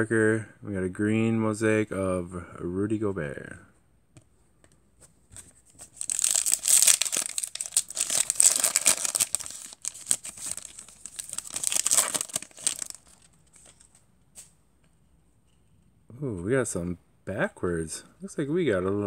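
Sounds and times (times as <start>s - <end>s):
wrapper crinkling and ripping: 5.8s - 13.9s.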